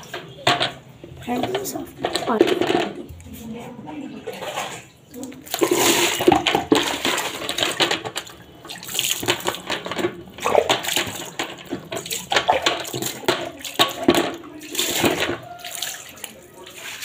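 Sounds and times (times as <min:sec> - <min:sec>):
water splashing onto concrete: 0:04.3 - 0:17.0.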